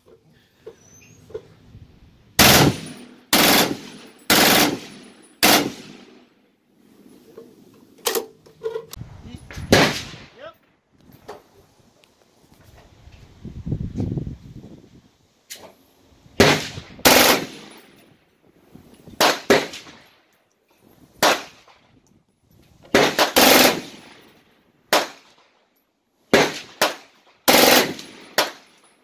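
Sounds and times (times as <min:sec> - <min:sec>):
machine gun firing bursts: 0:02.4 - 0:06.1, 0:16.4 - 0:17.7, 0:23.0 - 0:24.1, 0:26.3 - 0:28.6.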